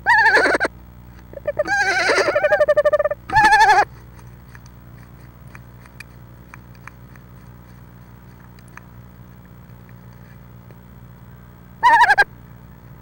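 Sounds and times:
steady low hum: 0.0s - 13.0s
owl clicking and rustling: 2.7s - 10.8s.

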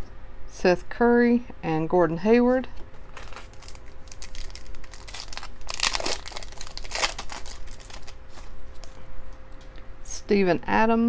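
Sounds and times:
foil wrapper crinkling: 2.9s - 9.0s.

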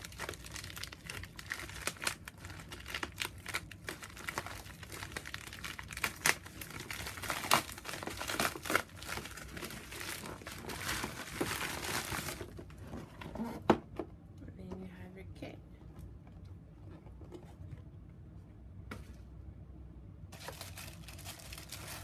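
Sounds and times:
padded envelope crinkling and tearing: 0.0s - 12.7s, 20.4s - 22.0s.

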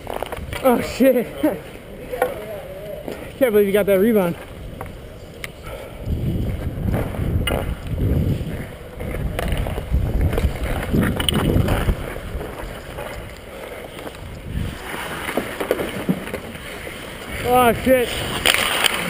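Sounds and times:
ice skates scraping: 0.0s - 19.0s
wind on camera microphone: 4.6s - 13.4s, 14.1s - 15.0s, 17.3s - 18.6s
hockey stick or puck clicks: 6.9s - 8.0s, 9.0s - 13.4s, 18.3s - 19.0s.

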